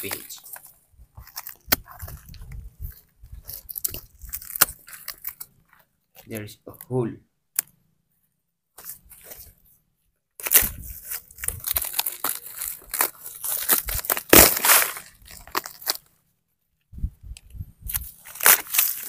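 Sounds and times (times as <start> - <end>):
rotten wood crunching and cracking: 0.0 - 6.4, 10.4 - 16.1, 17.8 - 19.0.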